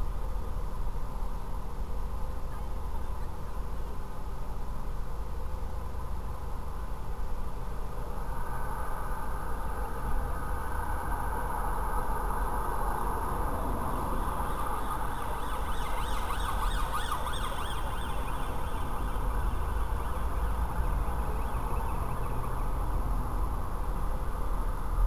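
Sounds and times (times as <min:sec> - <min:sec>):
car engine hum: 0:00.1 - 0:25.0
siren warbling: 0:12.9 - 0:23.0.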